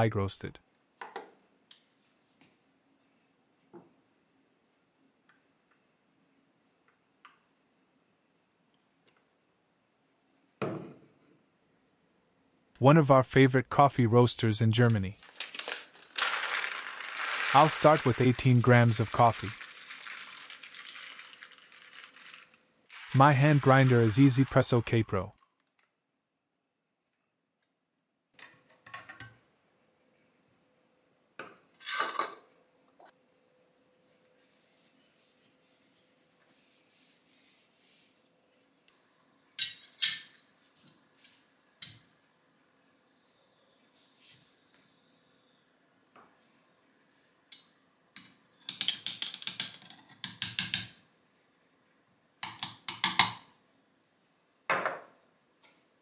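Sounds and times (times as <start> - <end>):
metal tools clattering: 16.2 - 24.6
metallic clinking and ringing: 17.5 - 22.7.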